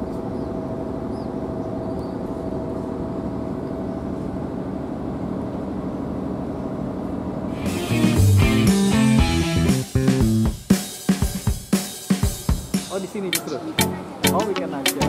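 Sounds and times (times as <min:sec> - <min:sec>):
engine drone: 0:00.0 - 0:10.5.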